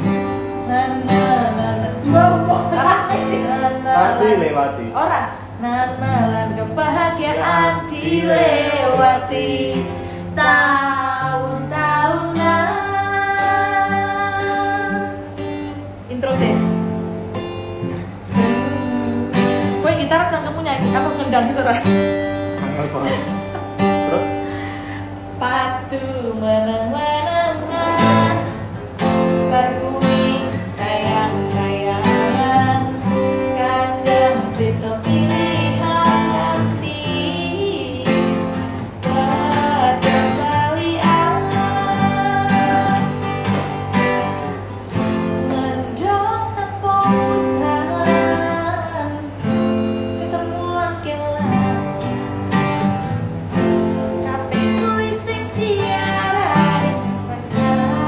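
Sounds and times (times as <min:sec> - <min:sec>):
strummed acoustic guitar: 0:00.0 - 0:58.0
person singing: 0:00.6 - 0:04.7, 0:05.6 - 0:15.3, 0:29.3 - 0:43.2.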